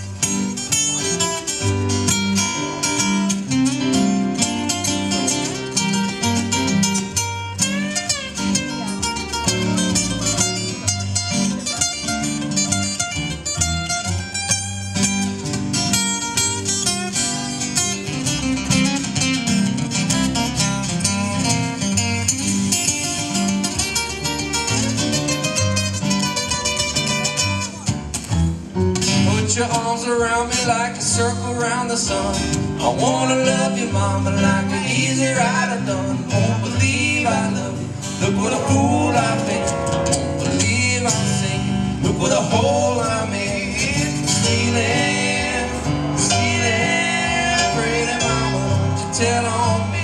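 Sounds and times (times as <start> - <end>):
acoustic guitars: 0.0 - 50.0
electric keyboard: 37.9 - 43.2.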